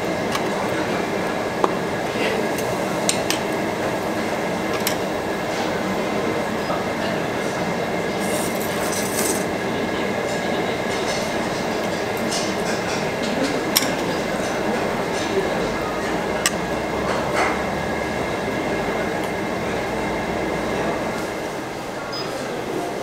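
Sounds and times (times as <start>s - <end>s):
metal tongs clinking on grill: 8.3s - 9.5s.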